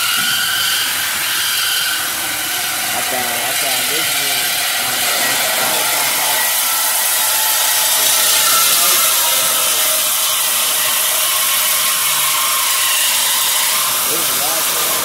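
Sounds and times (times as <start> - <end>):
power cutting tool cutting steel pipe: 0.0 - 15.0.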